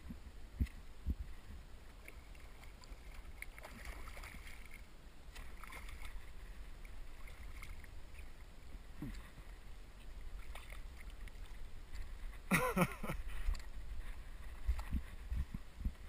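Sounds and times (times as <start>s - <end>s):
wind rumble on microphone: 0.0s - 4.8s, 5.7s - 16.0s
fish splashing in water: 2.0s - 6.3s.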